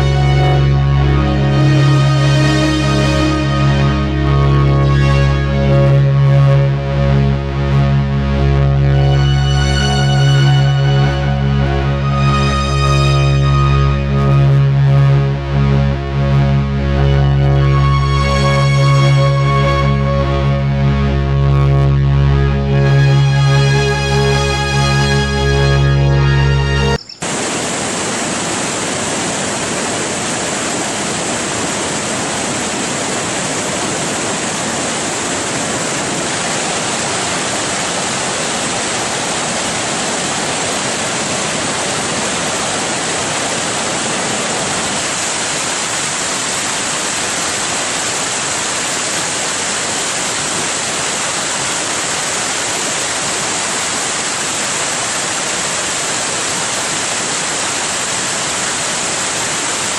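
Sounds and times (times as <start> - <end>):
water rushing over rocks: 27.2 - 59.9.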